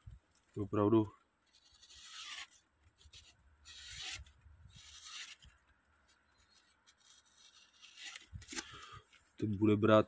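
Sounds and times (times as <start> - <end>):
razor slicing paper: 1.5 - 5.6, 6.4 - 8.8.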